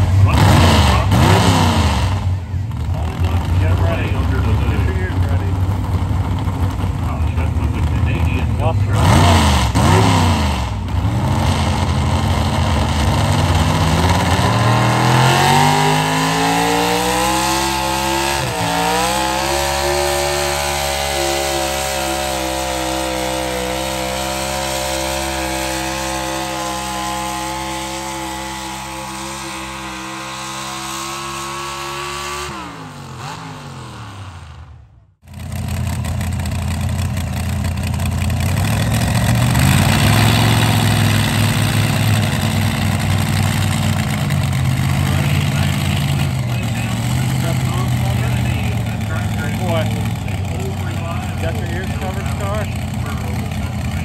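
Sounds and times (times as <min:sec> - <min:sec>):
tractor engine at full throttle: 0:00.0 - 0:54.0
tractor engine idling: 0:02.2 - 0:09.0, 0:35.2 - 0:54.0.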